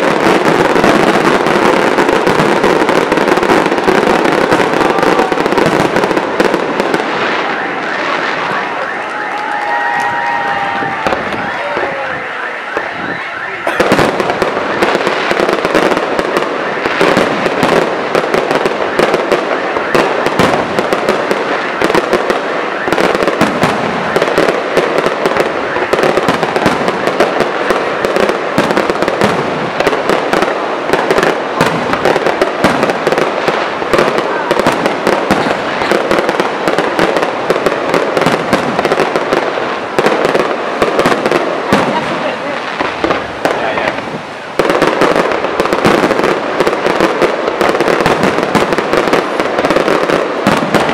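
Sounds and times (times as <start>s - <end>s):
fireworks bangs: 0.0s - 50.9s
fireworks crackling: 0.0s - 50.9s.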